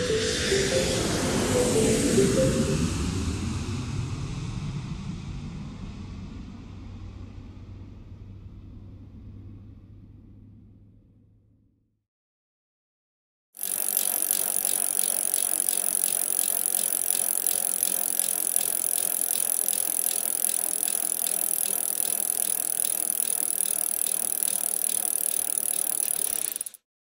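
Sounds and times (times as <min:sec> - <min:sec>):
bicycle mechanical ticking: 0:13.6 - 0:26.8
bicycle whirring hiss: 0:13.6 - 0:26.8.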